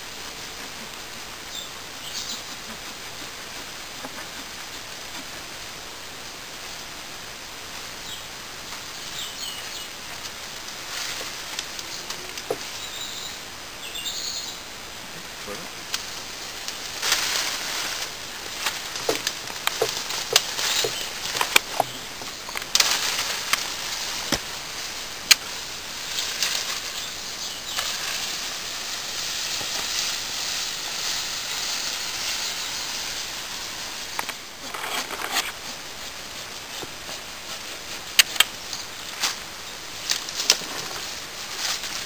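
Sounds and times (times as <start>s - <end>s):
leaves and branches rustling: 0.0s - 42.0s
twigs snapping: 15.9s - 24.6s, 25.2s - 26.9s, 38.1s - 39.4s.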